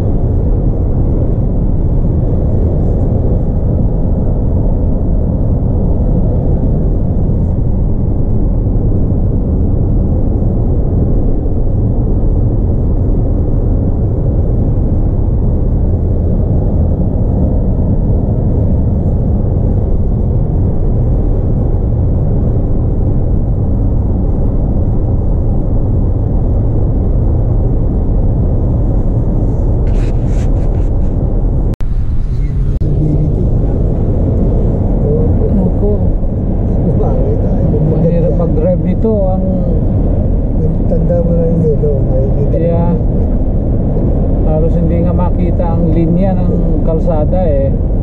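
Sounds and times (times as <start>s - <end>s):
wind against car body: 0.0s - 40.9s, 41.8s - 48.0s
car engine: 25.0s - 47.6s.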